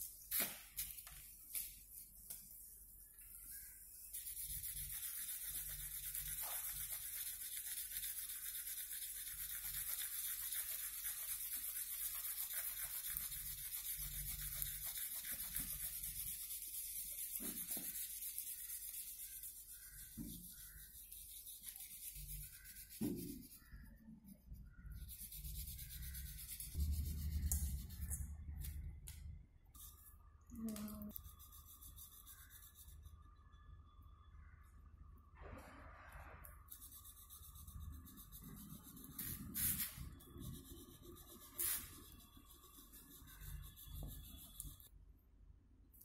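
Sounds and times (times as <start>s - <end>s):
pencil scribbling on paper: 3.9s - 28.1s, 36.7s - 44.9s.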